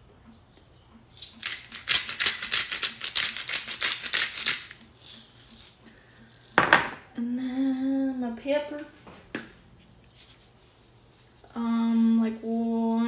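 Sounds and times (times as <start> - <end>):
salt rattling from shaker: 1.1 - 6.6, 10.1 - 13.0.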